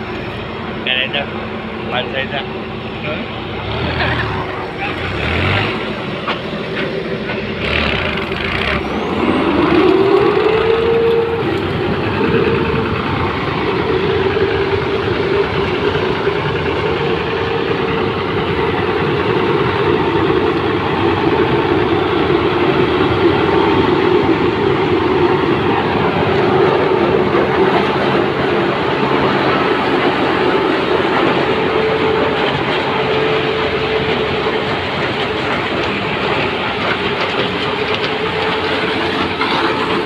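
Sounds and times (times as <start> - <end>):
diesel engine and machinery noise: 0.0 - 40.0.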